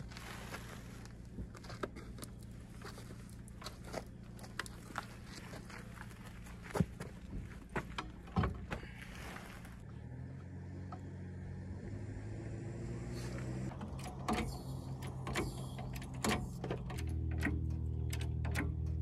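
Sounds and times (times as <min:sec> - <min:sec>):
steady low hum: 0:00.0 - 0:19.0
metal clanks and knocks: 0:06.9 - 0:08.9.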